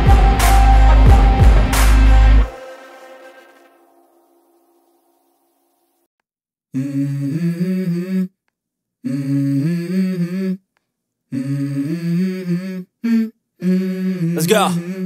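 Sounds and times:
wordless hummed vocal: 0:06.8 - 0:08.3, 0:09.0 - 0:10.6, 0:11.3 - 0:15.0.

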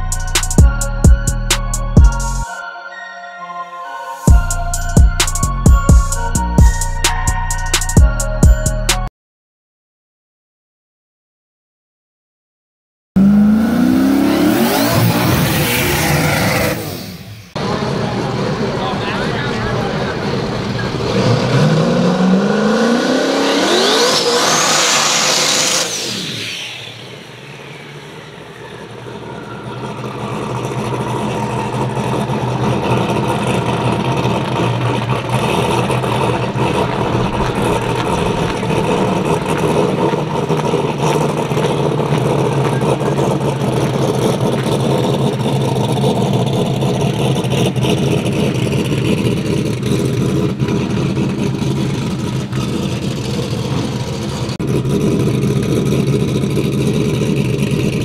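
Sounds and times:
big engine running steadily: 0:13.2 - 0:23.8, 0:24.6 - 0:58.0
drag race car accelerating: 0:13.2 - 0:58.0.

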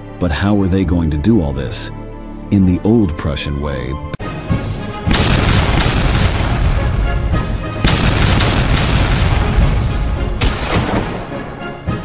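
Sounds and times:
background music: 0:00.0 - 0:12.0
cannon booms: 0:05.1 - 0:11.5.

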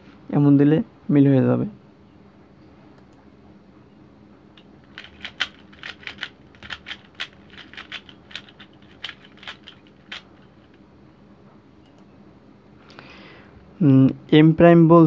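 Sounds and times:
plastic puzzle cube clacking: 0:04.9 - 0:10.5.

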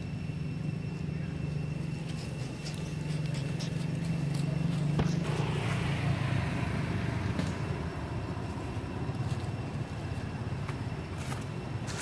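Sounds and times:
vehicle engine humming: 0:00.0 - 0:12.0
rush of noise: 0:04.7 - 0:11.8.

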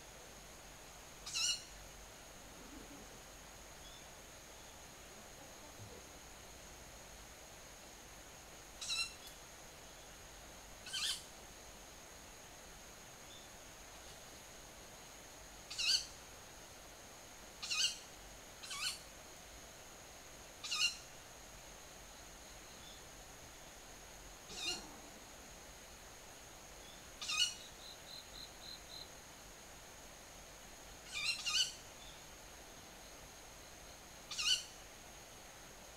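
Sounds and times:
high-pitched bird calls: 0:27.2 - 0:27.7, 0:34.3 - 0:34.7.

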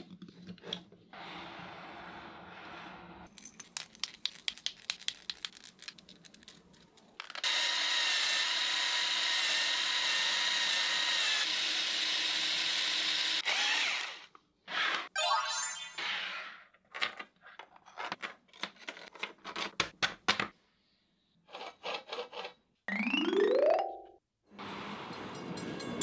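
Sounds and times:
cordless drill whirring: 0:07.4 - 0:15.1.

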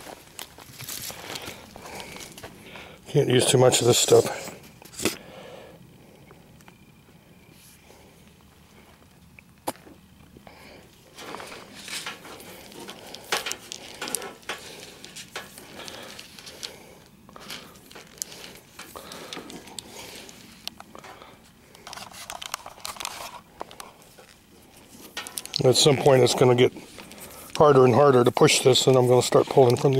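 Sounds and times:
wires rubbing and scraping in conduit: 0:10.9 - 0:29.9.

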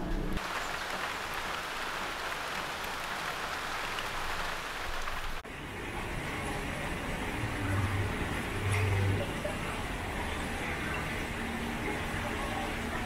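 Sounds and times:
water splashing: 0:00.4 - 0:05.5.

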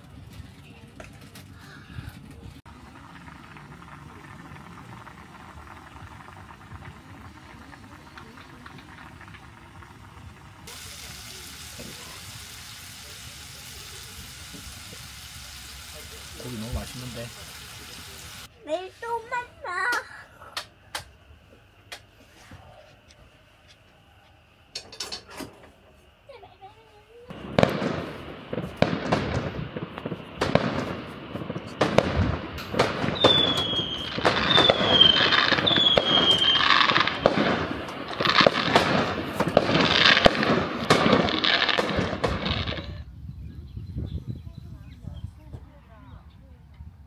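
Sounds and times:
broth bubbling at a boil: 0:02.6 - 0:18.5.

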